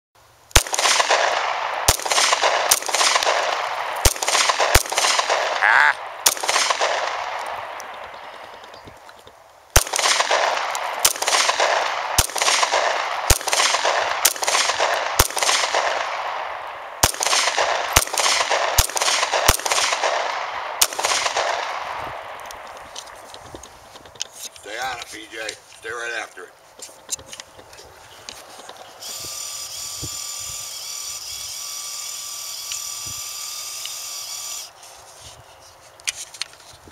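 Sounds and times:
gunshots with rolling echo: 0:00.5 - 0:08.7, 0:09.7 - 0:23.2.

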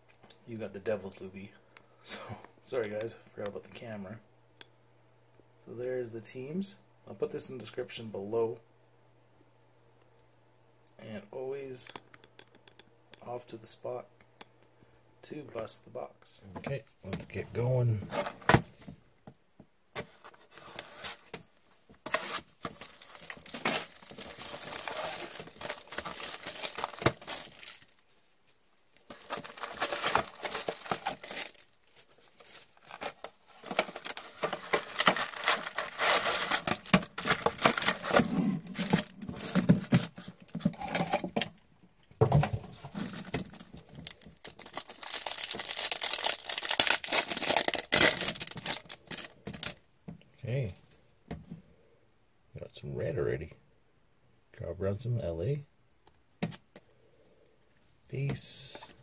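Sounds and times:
plastic wrap and foil rustling: 0:22.0 - 0:41.2, 0:42.6 - 0:49.8
foil pack tearing: 0:22.1 - 0:27.9, 0:29.1 - 0:31.7, 0:32.6 - 0:39.1, 0:43.0 - 0:49.8.

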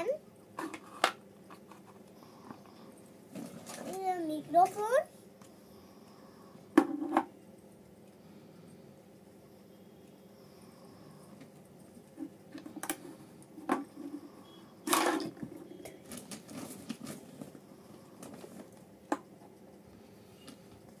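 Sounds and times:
plastic toys knocking and clattering: 0:00.6 - 0:01.9, 0:03.3 - 0:04.8, 0:06.8 - 0:07.3, 0:13.6 - 0:14.2, 0:14.8 - 0:17.3.

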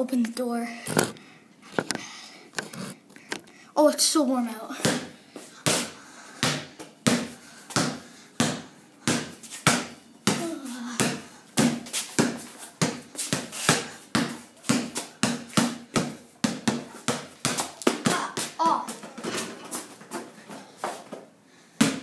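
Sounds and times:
basketball bouncing on concrete: 0:04.8 - 0:21.2, 0:21.8 - 0:22.0.

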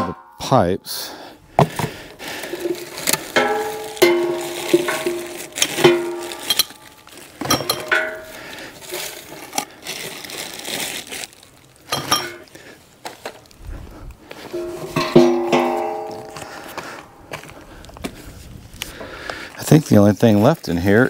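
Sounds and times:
metal pipe clinks and knocks: 0:02.6 - 0:06.8, 0:07.4 - 0:08.4, 0:11.9 - 0:12.4, 0:14.4 - 0:16.6.

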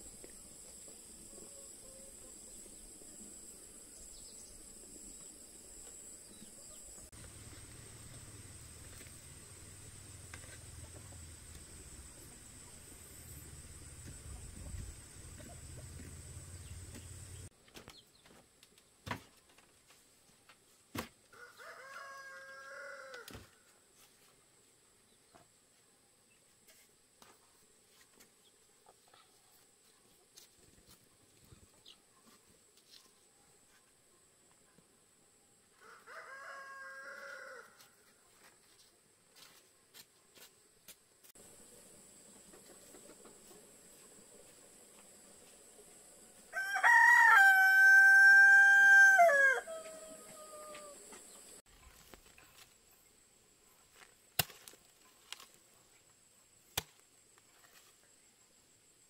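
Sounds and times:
rooster crowing: 0:21.4 - 0:23.3, 0:35.8 - 0:37.9, 0:46.5 - 0:51.1.

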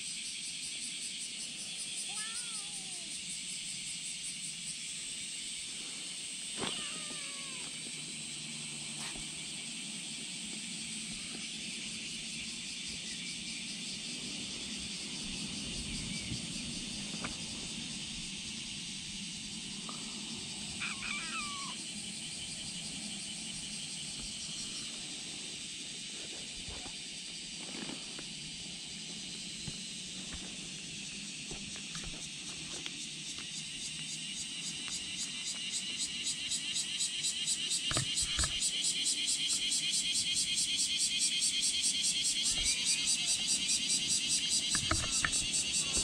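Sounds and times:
steady outdoor hiss: 0:00.0 - 0:46.0
kittens mewing: 0:02.0 - 0:03.1, 0:06.6 - 0:07.9, 0:20.7 - 0:21.8, 0:42.4 - 0:43.6.

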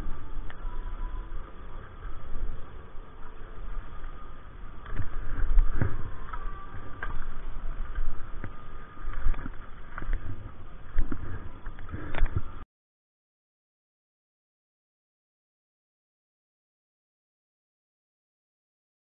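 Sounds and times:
low rumble: 0:00.0 - 0:12.6.

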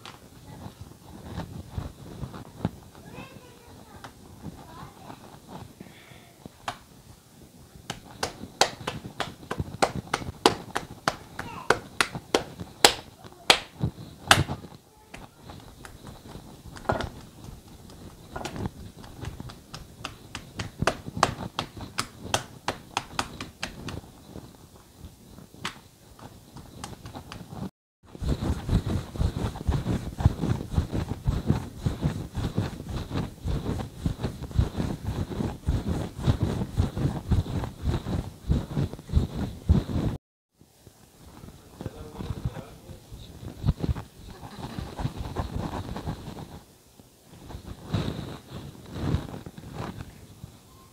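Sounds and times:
hands slapping dough: 0:06.6 - 0:06.9, 0:07.8 - 0:24.5, 0:25.6 - 0:40.1
patting dough on countertop: 0:07.8 - 0:24.6, 0:25.4 - 0:40.1
rolling pin rolling dough: 0:07.8 - 0:24.6, 0:25.4 - 0:40.1.

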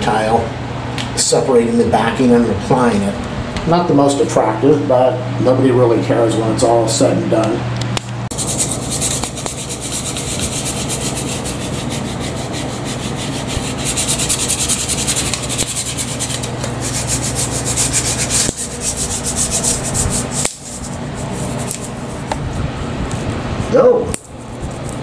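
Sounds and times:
hand rubbing tape on tile: 0:08.3 - 0:22.4.

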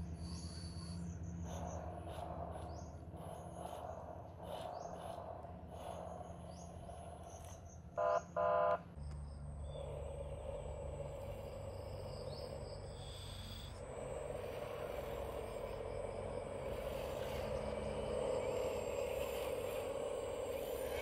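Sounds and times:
birds chirping: 0:00.0 - 0:08.4
insects: 0:00.0 - 0:21.0
steady low hum: 0:00.0 - 0:21.0.

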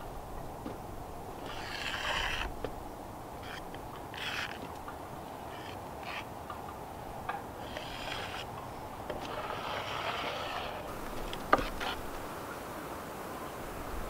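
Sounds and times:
plastic spreader scraping wood: 0:01.4 - 0:02.8, 0:03.4 - 0:04.8, 0:07.6 - 0:12.1.

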